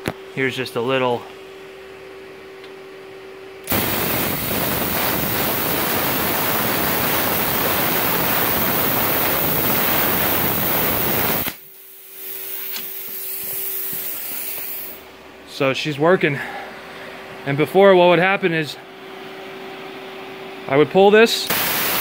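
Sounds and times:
plasma cutter hissing: 3.7s - 15.0s, 21.5s - 22.0s.

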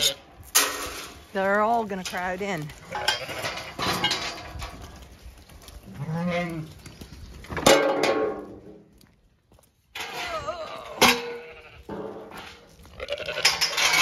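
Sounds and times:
sheep bleating: 10.3s - 11.9s, 12.9s - 13.7s.

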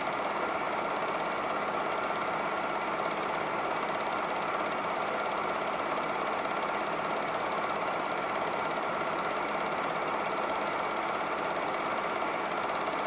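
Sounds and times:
film projector clatter: 0.0s - 13.0s.

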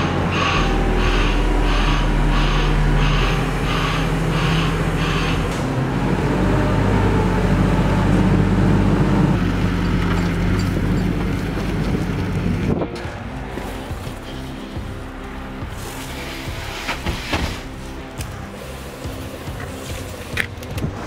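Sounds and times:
warning beeper: 0.0s - 8.0s
forklift engine revving: 0.0s - 21.0s.

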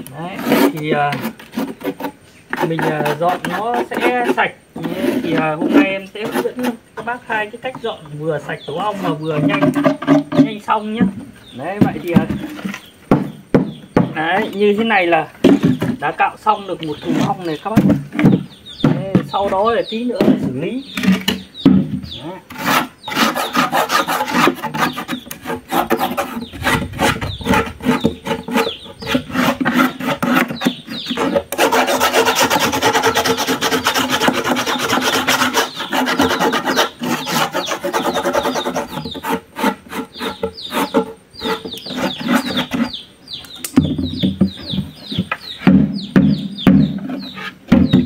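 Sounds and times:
stick scraping wooden box: 0.0s - 48.0s
dull thuds of box handled: 15.4s - 16.0s, 43.8s - 47.1s, 47.7s - 48.0s.

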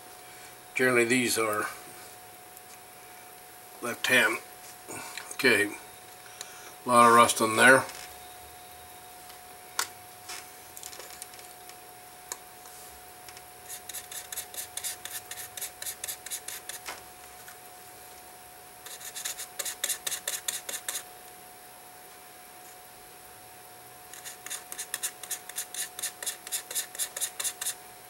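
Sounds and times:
hand tool scraping metal: 13.6s - 16.9s, 18.8s - 21.1s, 24.1s - 27.8s.

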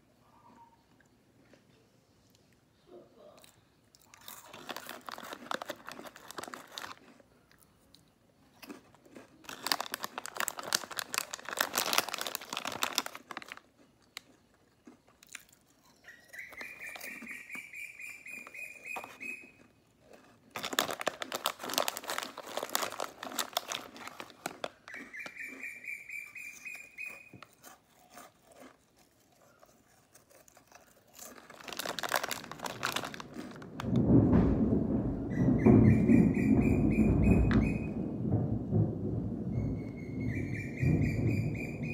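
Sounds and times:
crackers crunched and chewed: 3.2s - 34.0s
plastic snack bag crinkling: 3.9s - 34.6s.

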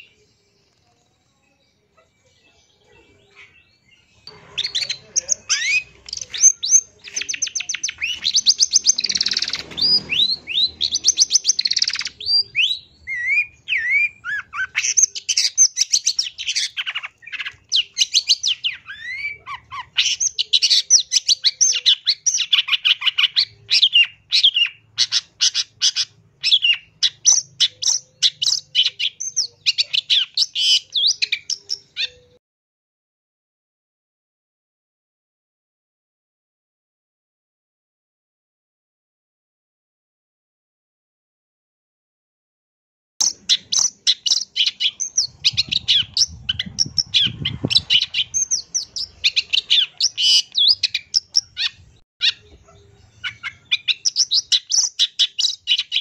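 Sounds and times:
shrike singing: 4.0s - 25.7s.

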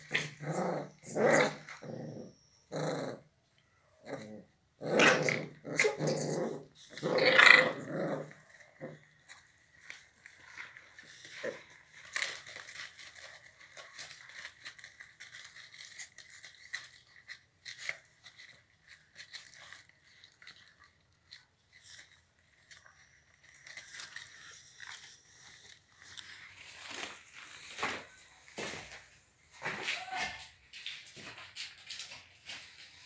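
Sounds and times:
paws scuffing on concrete: 26.4s - 31.5s.

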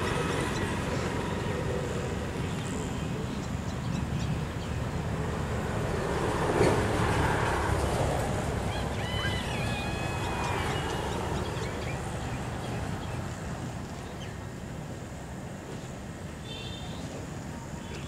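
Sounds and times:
high whistling calls: 8.6s - 13.2s.

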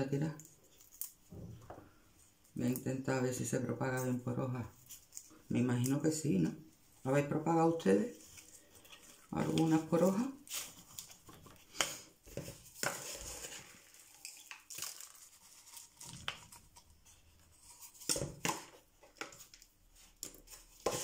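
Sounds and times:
leaves rustling and snapping: 12.8s - 16.6s.

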